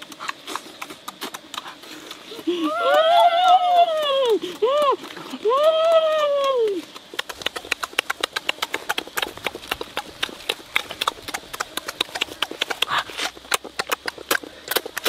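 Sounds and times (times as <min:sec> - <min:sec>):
wet lip-smacking while eating: 0:00.0 - 0:15.0
slurp: 0:06.8 - 0:15.0.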